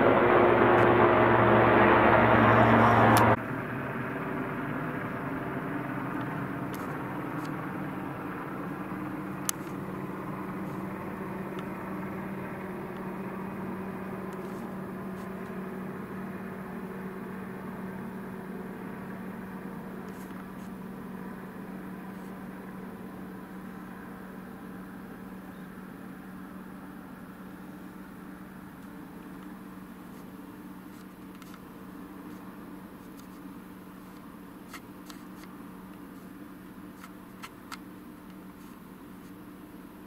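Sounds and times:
helicopter droning: 0.0s - 40.0s.

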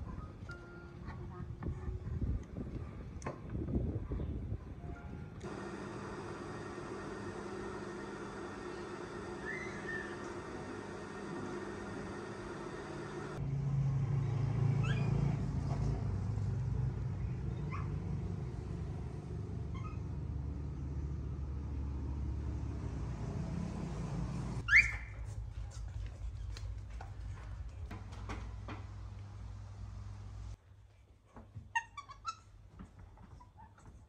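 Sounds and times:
sewing machine humming: 5.4s - 13.4s.

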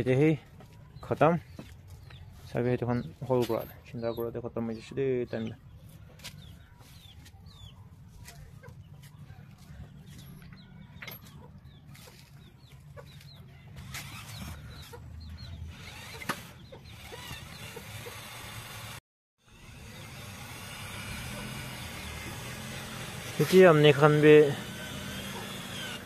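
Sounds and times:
chickens clucking: 6.5s - 13.7s, 14.3s - 18.2s.

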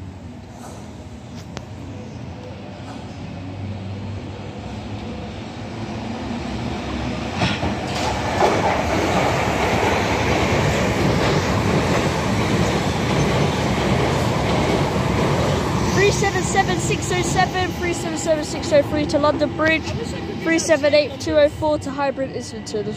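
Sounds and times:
train passing at speed: 0.0s - 22.9s
sharp clicks of train wheels: 7.3s - 20.0s.

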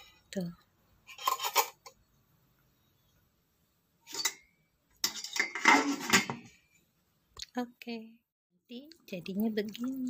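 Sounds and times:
metal lid clattering and scraping: 1.1s - 1.9s, 4.0s - 6.6s
metal lid clink: 4.1s - 4.4s, 5.0s - 6.5s.

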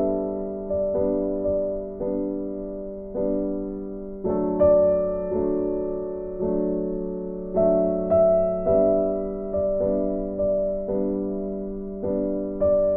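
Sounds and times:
slow piano chords: 0.0s - 12.9s.

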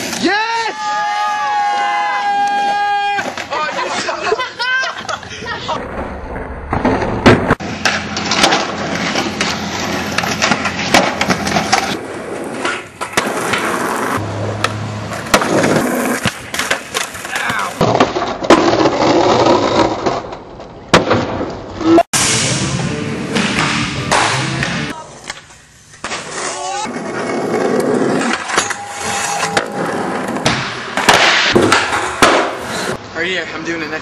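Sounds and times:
skateboards rolling on concrete: 0.0s - 22.0s, 24.4s - 33.5s
skateboard pops and clacks: 30.4s - 32.6s.

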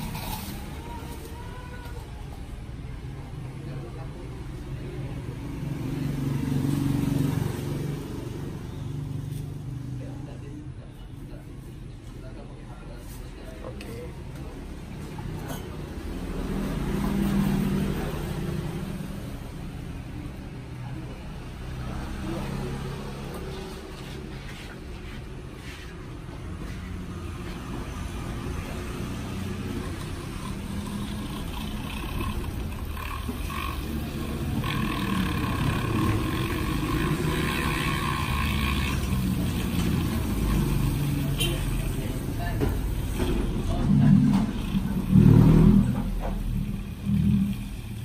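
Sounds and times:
road traffic rumble: 0.0s - 48.0s
motor vehicle passing close: 4.4s - 10.1s, 15.4s - 25.8s, 26.6s - 48.0s
milk frother whirring: 28.6s - 41.4s.

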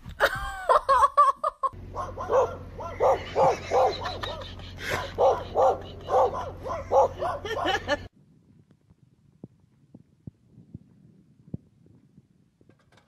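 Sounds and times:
dog barking: 1.9s - 7.9s.

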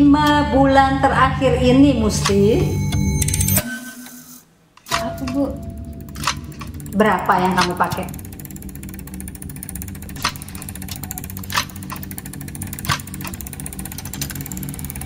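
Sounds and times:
steady low hum: 0.0s - 15.0s
sharp ticks: 4.8s - 15.0s.

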